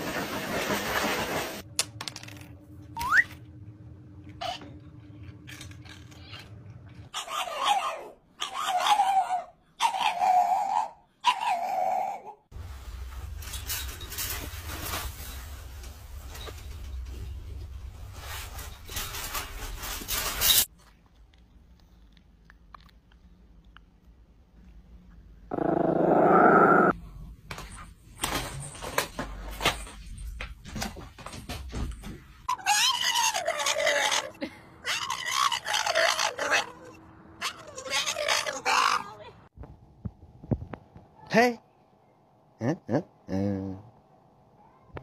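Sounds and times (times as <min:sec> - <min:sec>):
dog howling raspily: 0:32.5 - 0:39.2.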